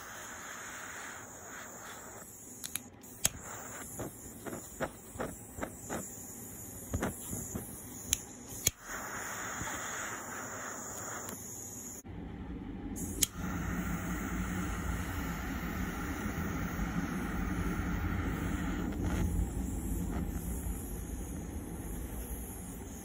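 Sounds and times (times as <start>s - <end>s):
torch flame hissing: 0.0s - 12.1s, 13.0s - 23.0s.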